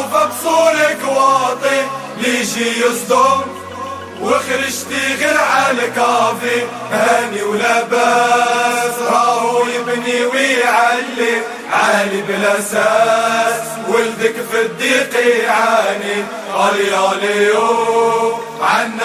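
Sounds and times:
melody of sliding bending notes: 0:00.0 - 0:09.2
low drone: 0:00.0 - 0:11.8.

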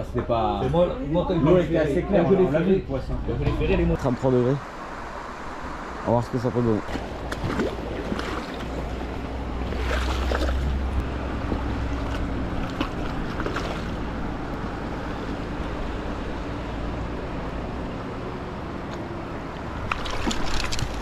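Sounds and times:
river water rushing and splashing: 0:04.1 - 0:17.9, 0:18.6 - 0:21.0
wind rumbling on microphone: 0:19.6 - 0:21.0.

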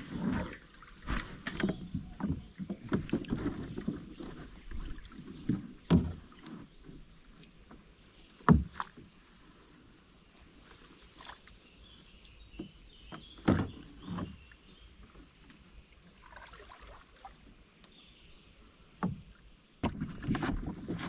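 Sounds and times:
water noise: 0:00.0 - 0:21.0
hollow knocks against boat hull: 0:08.4 - 0:09.0, 0:19.0 - 0:21.0.

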